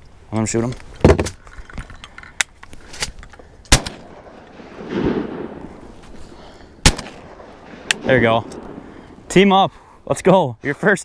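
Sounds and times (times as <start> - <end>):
shotgun blasts: 3.7 - 9.3.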